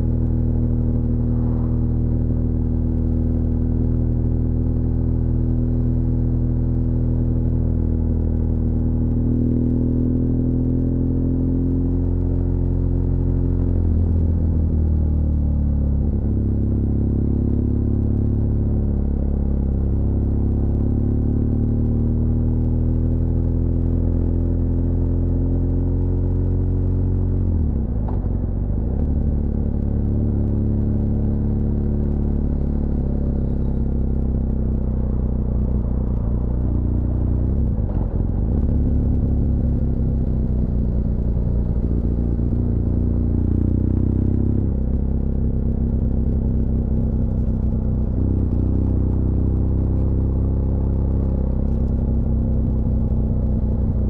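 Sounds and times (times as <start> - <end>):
motorcycle engine running: 24.4 - 54.0.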